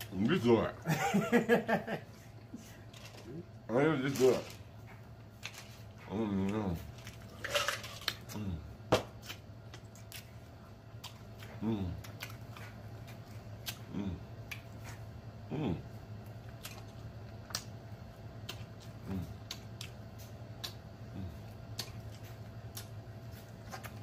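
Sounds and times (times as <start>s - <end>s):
person moaning mm: 8.3s - 8.7s, 11.6s - 12.0s, 13.8s - 14.3s, 15.5s - 15.9s, 19.0s - 19.4s, 21.1s - 21.4s.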